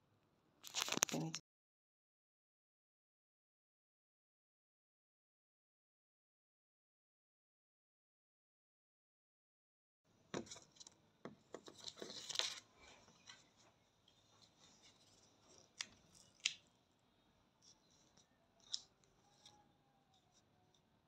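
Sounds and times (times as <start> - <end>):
wax strip rustling and crinkling: 0.6 - 1.3, 11.6 - 16.9.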